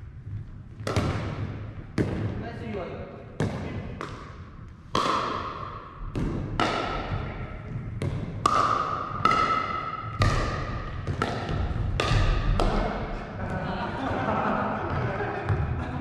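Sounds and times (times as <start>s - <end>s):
paddles striking plastic ball: 0.8s - 2.3s, 3.4s - 13.0s.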